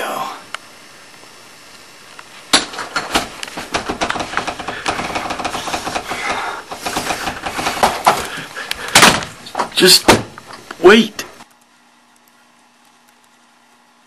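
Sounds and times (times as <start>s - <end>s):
clatter of knocks and rattles: 2.6s - 8.3s.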